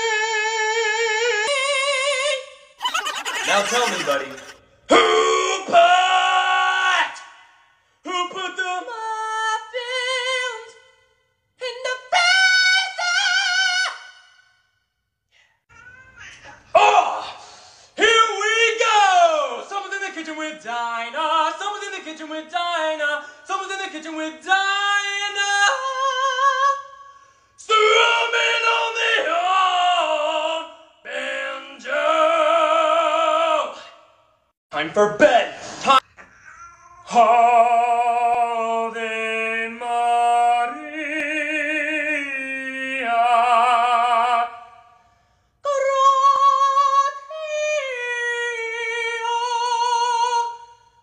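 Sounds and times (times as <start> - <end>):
man singing with vibrato: 0.0 - 14.4, 18.0 - 34.2, 37.0 - 45.0, 45.6 - 51.0
man singing wordless notes: 8.0 - 10.7, 18.0 - 26.9, 37.1 - 44.7
cat yowling: 36.3 - 37.1.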